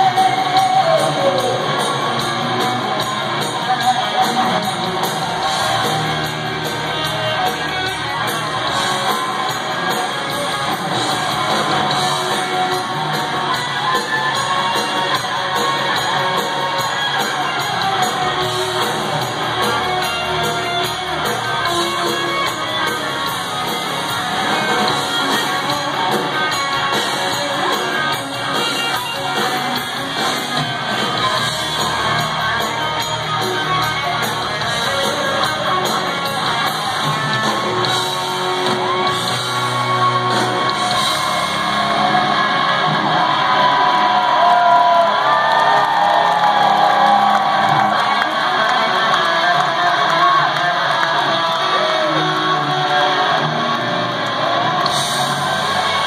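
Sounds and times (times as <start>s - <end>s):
drums: 0.0s - 56.0s
electric guitar: 0.0s - 56.0s
crowd shouting: 39.1s - 56.0s.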